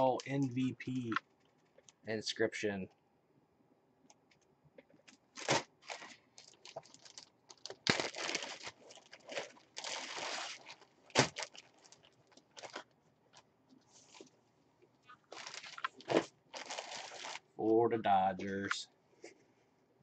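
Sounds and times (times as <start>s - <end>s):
plastic bag crinkling: 5.3s - 13.4s, 15.1s - 17.5s.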